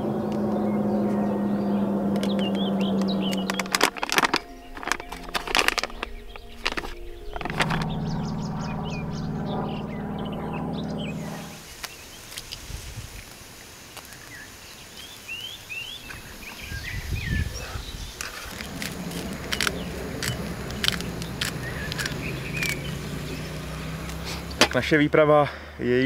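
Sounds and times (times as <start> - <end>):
low hum: 0.0 - 11.9, 16.2 - 24.2
birds chirping: 0.0 - 13.1, 14.0 - 26.0
sharp clicks: 2.1 - 9.7, 18.2 - 23.0.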